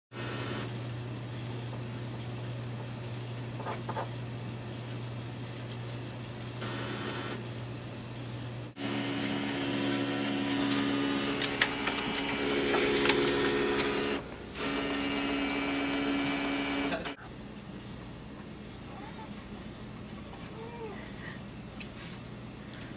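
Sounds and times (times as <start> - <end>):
fax machine motor whirring: 0.1 - 0.8, 6.6 - 7.5, 8.7 - 17.2
machine clicks: 10.7 - 14.2.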